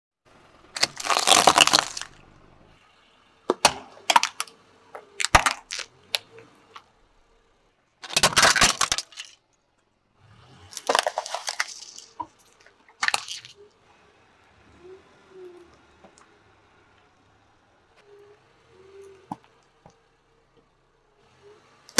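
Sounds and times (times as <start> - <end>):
tyre crushing plastic toys: 0.7 - 2.2, 3.5 - 6.8, 8.0 - 9.4, 10.6 - 13.6.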